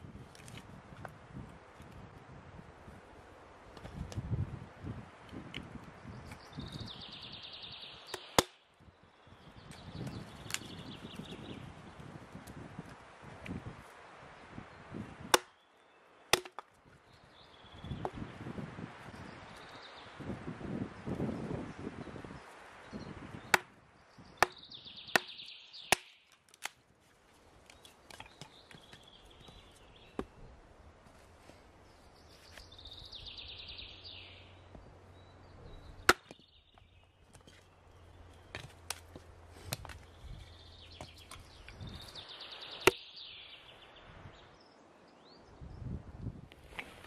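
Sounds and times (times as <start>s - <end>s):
hatchet splitting wood: 8.1s - 8.6s, 15.2s - 15.6s, 16.3s - 16.8s, 23.5s - 23.8s, 24.4s - 26.8s, 36.0s - 37.6s.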